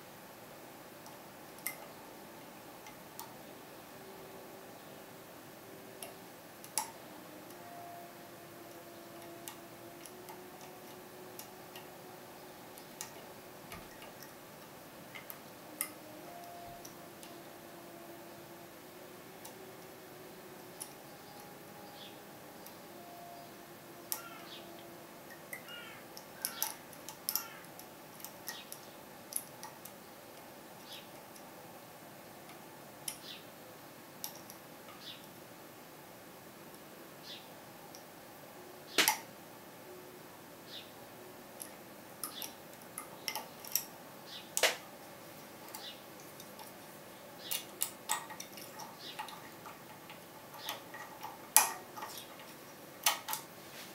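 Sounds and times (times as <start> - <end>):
lock pick clicking and scraping: 47.4 - 53.5.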